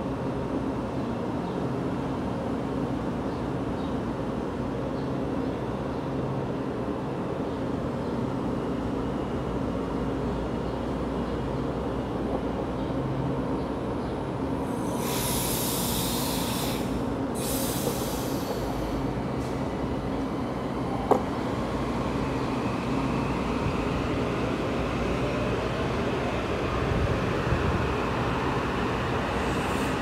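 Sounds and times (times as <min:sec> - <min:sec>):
electric train hum: 0:00.0 - 0:30.0
air hiss bursts: 0:14.7 - 0:19.0.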